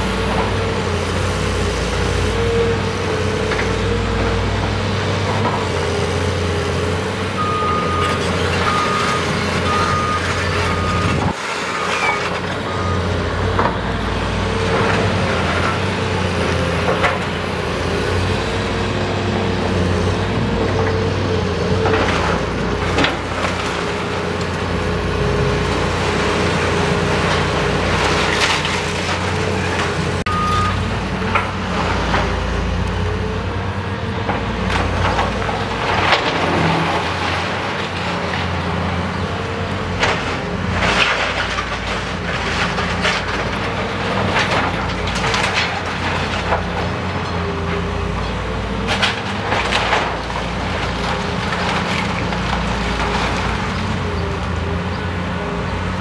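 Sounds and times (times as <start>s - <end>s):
excavator diesel engine running: 0.0s - 56.0s
crashes of breaking debris: 39.9s - 47.0s, 48.8s - 53.9s.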